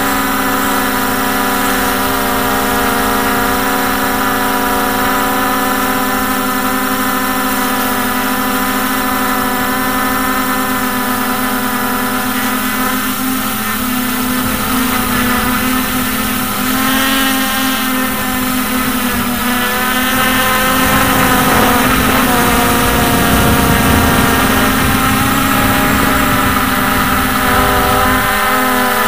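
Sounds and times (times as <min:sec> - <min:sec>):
drone motors whining: 0:00.0 - 0:29.0
low wind rumble: 0:13.4 - 0:29.0.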